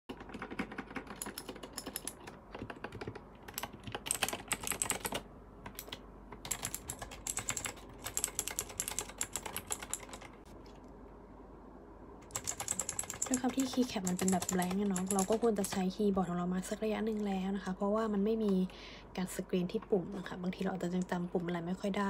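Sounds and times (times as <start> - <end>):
mechanical keyboard key clacks: 0.1 - 10.3.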